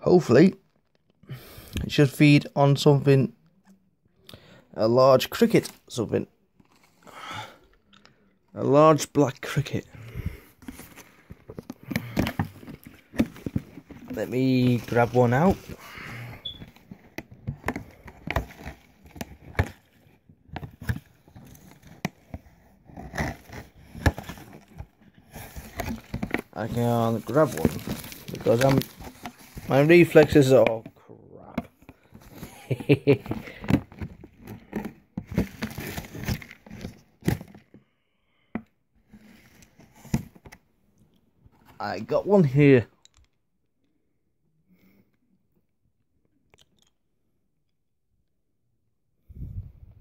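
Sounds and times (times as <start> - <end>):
plastic container rustling and scraping: 9.4 - 31.0, 31.6 - 37.8.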